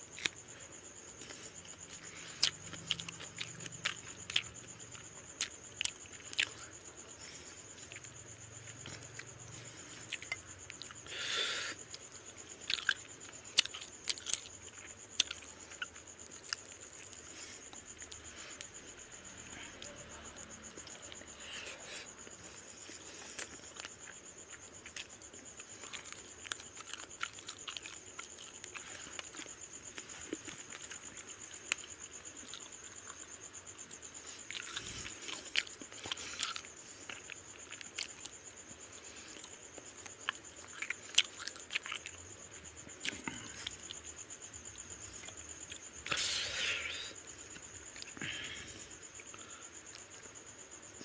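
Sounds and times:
faint high-pitched whine: 0.0s - 51.0s
chewing with wet mouth smacks: 1.2s - 6.7s, 12.6s - 18.3s, 22.9s - 33.2s, 34.3s - 38.3s, 39.3s - 42.2s.

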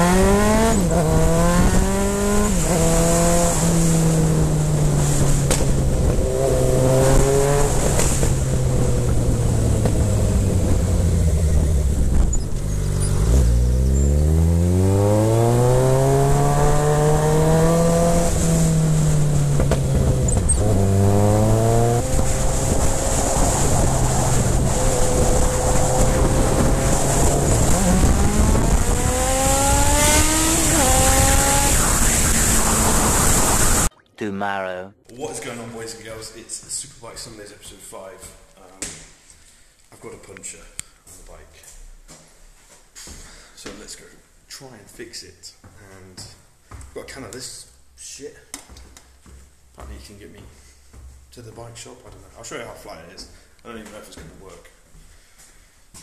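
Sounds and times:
motorcycle engine revving: 0.0s - 33.9s.

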